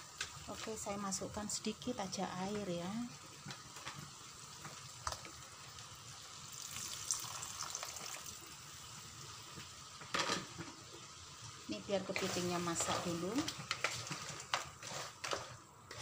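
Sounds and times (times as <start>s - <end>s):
food sizzling in frying pan: 0.0s - 16.0s
water pouring into pan: 6.5s - 8.7s
wooden spatula scraping pan: 12.1s - 16.0s.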